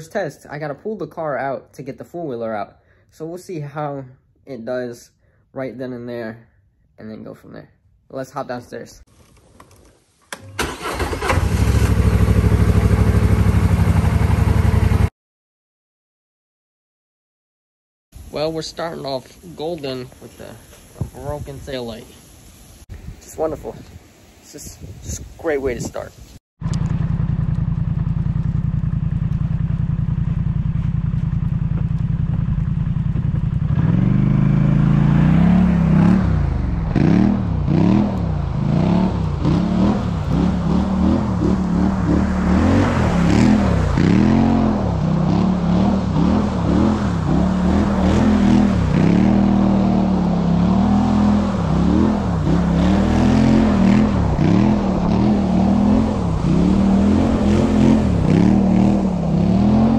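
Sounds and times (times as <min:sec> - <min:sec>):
quad bike engine revving: 0:10.6 - 0:15.1, 0:31.2 - 0:59.9.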